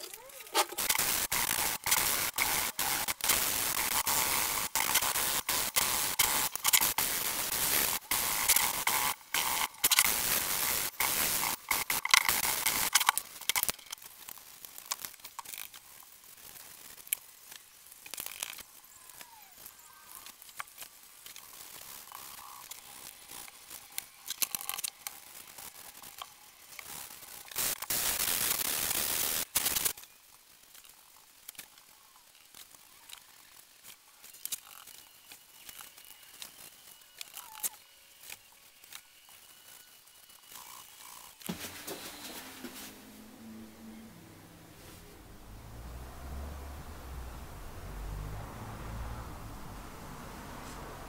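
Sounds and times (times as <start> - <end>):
small parts clicking and scraping: 0.0 - 42.2.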